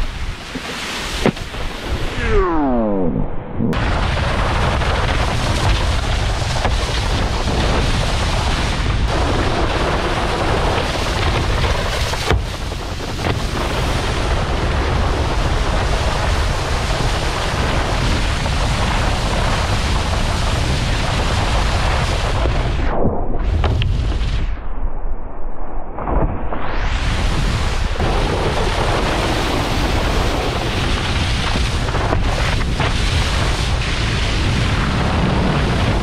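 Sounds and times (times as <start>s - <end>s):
water spray from wakeboard: 0.0s - 2.2s, 4.4s - 14.4s
wind buffeting microphone: 0.0s - 24.6s, 26.2s - 36.0s.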